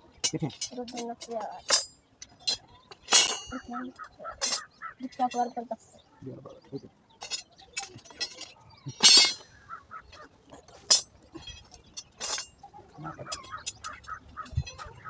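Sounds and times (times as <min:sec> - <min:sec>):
birds chirping: 0:00.0 - 0:15.0
steel wire clinking and scraping: 0:00.2 - 0:05.5, 0:07.2 - 0:15.0.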